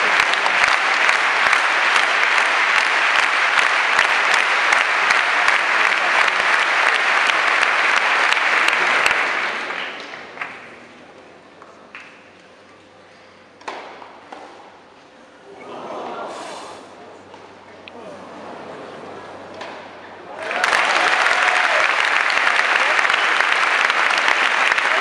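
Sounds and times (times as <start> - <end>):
crowd applauding: 0.0 - 11.0, 20.2 - 25.0.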